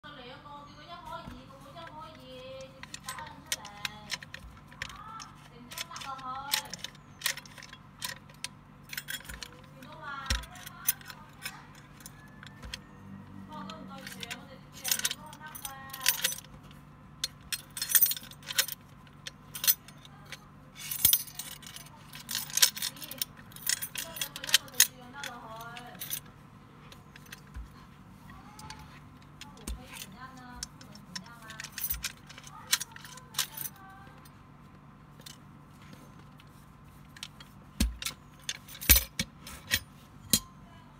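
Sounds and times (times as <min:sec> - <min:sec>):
keys jangling: 0:02.6 - 0:12.8, 0:13.9 - 0:16.6, 0:17.2 - 0:26.3, 0:28.5 - 0:34.3, 0:37.2 - 0:40.5
lock and handle clicking: 0:02.6 - 0:12.9, 0:13.6 - 0:16.6, 0:17.2 - 0:26.3, 0:28.5 - 0:34.3, 0:36.3 - 0:40.5.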